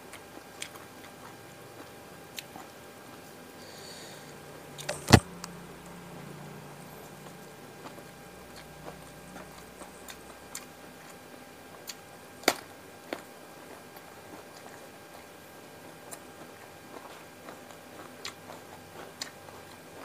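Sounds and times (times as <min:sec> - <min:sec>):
crunch of biting vegetable: 0:04.8 - 0:05.2
wet mouth clicks chewing: 0:18.2 - 0:19.8.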